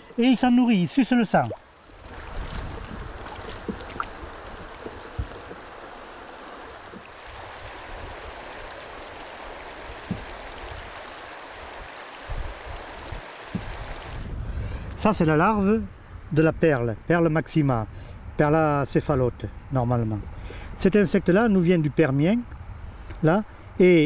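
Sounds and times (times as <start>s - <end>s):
stream running over stones: 0.2s - 14.3s
stones knocking in water: 1.4s - 4.3s.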